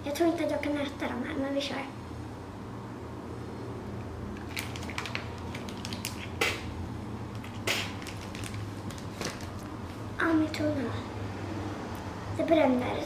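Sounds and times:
plastic packet crinkling: 4.4s - 6.6s, 7.3s - 10.0s.

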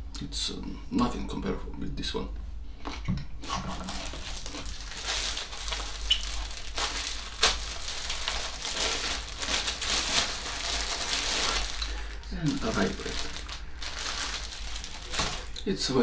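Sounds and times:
plastic packaging crinkling: 3.4s - 15.7s.

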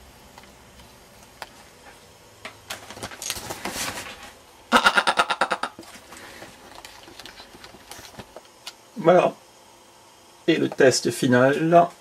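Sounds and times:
rustling handling noise: 2.6s - 4.4s, 5.8s - 8.6s
man laughing: 4.7s - 5.8s.

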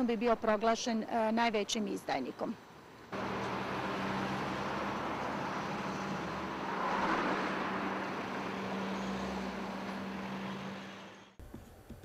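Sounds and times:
road traffic hum: 1.6s - 11.4s
vehicle passing: 3.1s - 11.4s.

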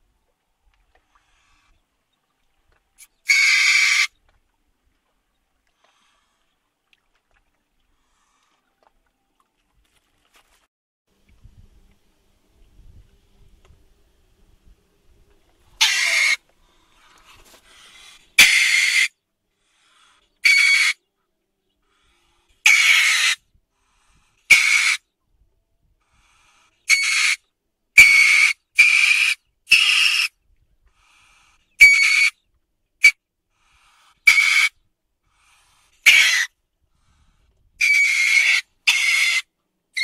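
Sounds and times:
weasel screeching calls: 3.2s - 4.1s, 15.8s - 16.4s, 18.0s - 19.1s, 20.4s - 21.0s, 22.6s - 23.4s, 24.5s - 25.0s, 26.9s - 27.4s, 28.0s - 30.3s, 31.8s - 32.4s, 34.2s - 34.8s, 36.0s - 36.5s, 37.8s - 40.0s.

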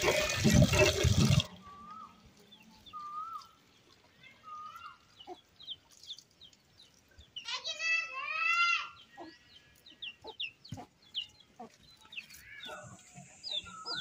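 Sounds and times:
running water: 0.0s - 2.5s
high bird chirps: 2.8s - 3.6s, 4.4s - 14.0s
whistled bird calls: 2.9s - 3.6s, 12.4s - 14.0s.

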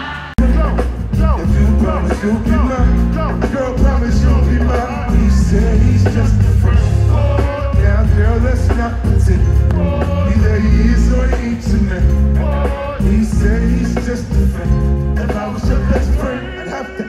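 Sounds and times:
heavy bass line: 0.0s - 16.6s
person singing: 0.0s - 17.0s.

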